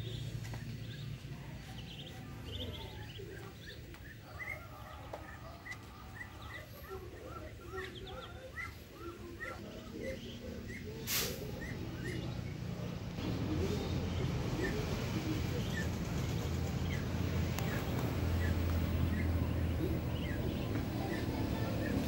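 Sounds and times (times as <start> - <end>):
ducklings peeping: 0.0 - 22.0.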